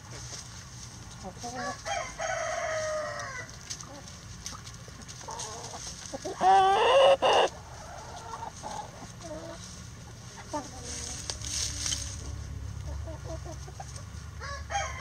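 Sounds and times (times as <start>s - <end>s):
hens clucking: 0.0s - 15.0s
rooster crowing: 1.6s - 3.5s, 14.4s - 15.0s
chicken calling: 5.2s - 9.7s.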